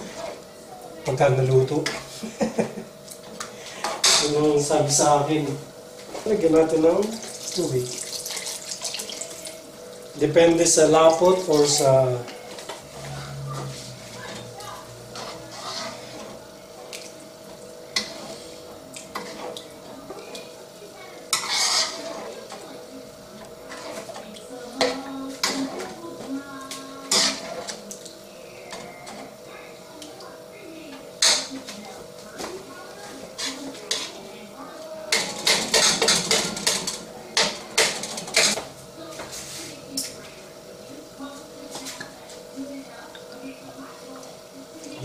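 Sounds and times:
ladle scraping pan: 0:12.5 - 0:16.4, 0:21.3 - 0:22.6, 0:23.6 - 0:26.3, 0:27.0 - 0:27.8, 0:35.1 - 0:38.6
ladle stirring thick sauce: 0:13.6 - 0:17.3, 0:21.3 - 0:22.7
metal ladle scraping a pan: 0:15.1 - 0:16.4, 0:21.3 - 0:22.3, 0:23.6 - 0:24.1, 0:27.0 - 0:27.8.

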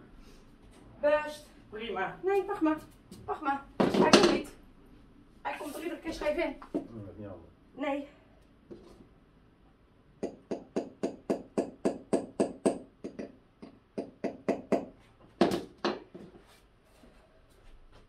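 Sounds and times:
hammer tapping: 0:10.2 - 0:16.1.

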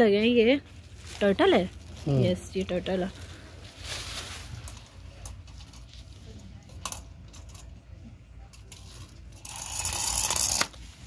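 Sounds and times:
plastic toy clicking on tiled floor: 0:08.6 - 0:10.8.

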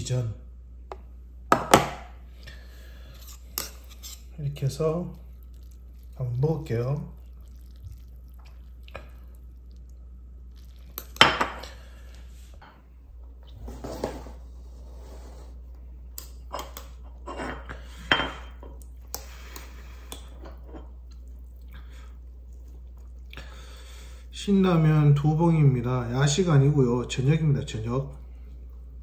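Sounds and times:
dishes clattering: 0:16.5 - 0:18.8.

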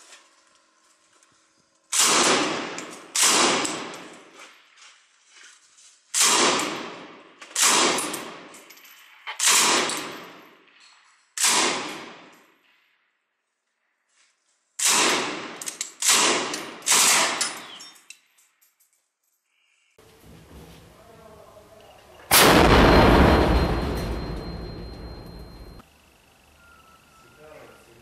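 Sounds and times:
machine gun shots echoing: 0:02.0 - 0:04.1, 0:06.2 - 0:08.5, 0:09.4 - 0:10.4, 0:11.4 - 0:12.3, 0:22.3 - 0:25.8.

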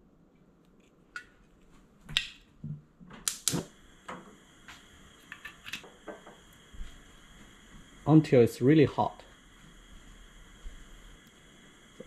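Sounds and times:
gas burner igniter clicks: 0:03.2 - 0:06.7
gas flame hissing: 0:03.2 - 0:12.0.

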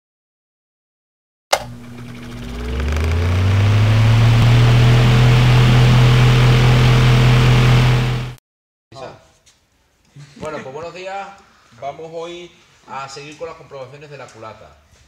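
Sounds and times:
rising rushing drone: 0:01.7 - 0:08.4.

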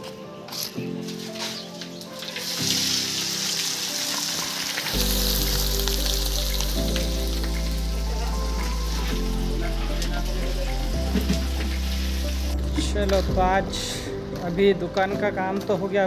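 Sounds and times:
background music: 0:00.0 - 0:16.0
food sizzling in hot oil: 0:01.6 - 0:12.6.

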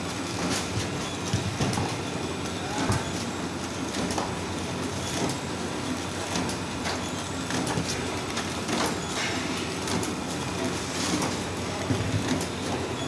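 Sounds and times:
packing machine clatter: 0:00.0 - 0:13.0.

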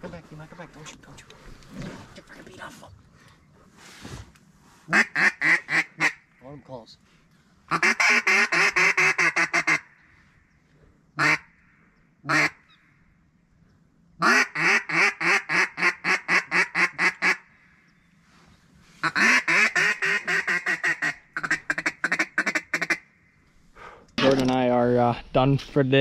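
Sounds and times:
duck call quacks: 0:04.9 - 0:06.2, 0:07.7 - 0:09.9, 0:11.2 - 0:11.5, 0:12.3 - 0:12.6, 0:14.2 - 0:17.4, 0:19.0 - 0:23.0.

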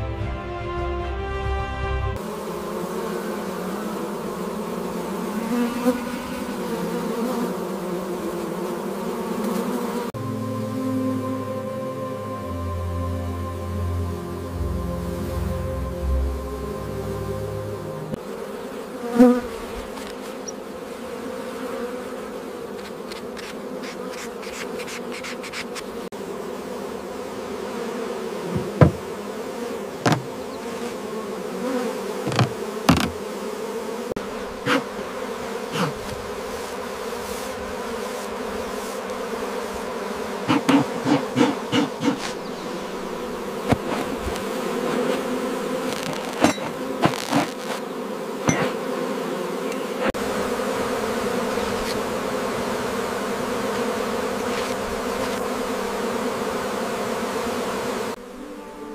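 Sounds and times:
honeybees buzzing: 0:00.0 - 0:58.9
sharp knocks and clicks: 0:32.3 - 0:33.2.

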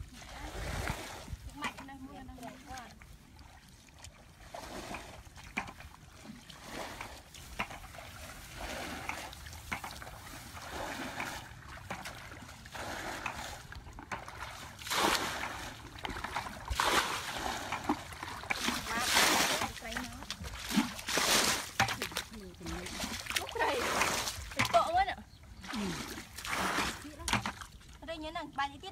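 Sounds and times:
footsteps splashing in muddy water: 0:00.0 - 0:28.9
hands splashing in muddy pool: 0:06.4 - 0:24.8, 0:25.6 - 0:27.7.

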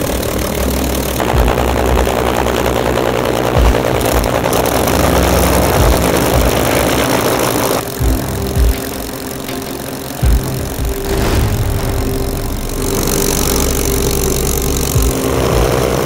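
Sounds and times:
piston aircraft engine running: 0:00.0 - 0:16.0.

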